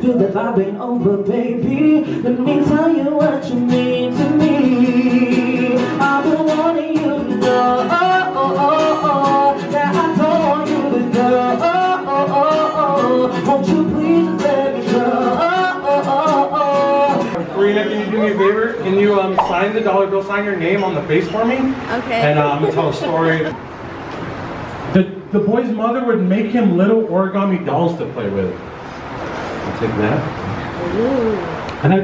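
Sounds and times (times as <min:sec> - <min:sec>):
man singing: 0:00.0 - 0:18.3
acoustic guitar strumming: 0:00.0 - 0:23.9.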